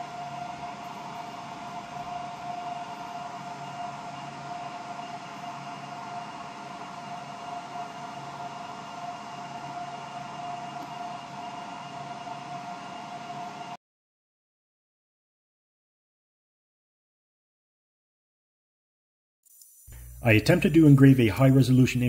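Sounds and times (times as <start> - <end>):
machine whirring with whine: 0.0 - 13.8.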